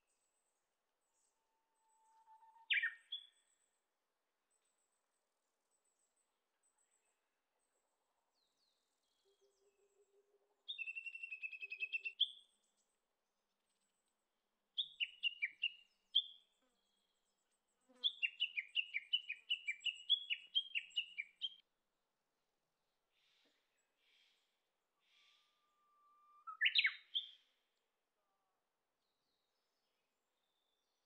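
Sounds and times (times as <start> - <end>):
bird singing trills and notes: 1.2 - 3.6, 8.4 - 12.6, 14.8 - 17.0, 17.9 - 21.6, 26.3 - 27.5.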